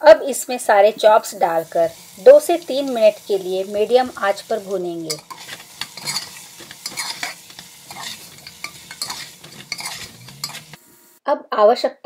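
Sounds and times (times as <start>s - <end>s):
meat sizzling in oil: 0.3s - 11.2s
metal spoon scraping pot: 5.1s - 10.9s.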